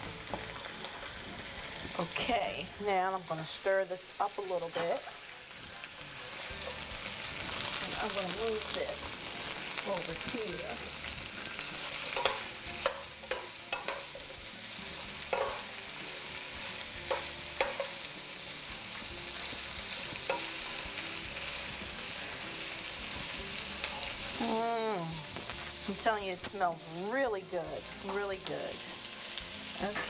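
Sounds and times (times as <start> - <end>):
vegetables sizzling in oil: 0.0 - 30.0
metal spoon scraping pan: 11.6 - 14.4, 15.3 - 15.7.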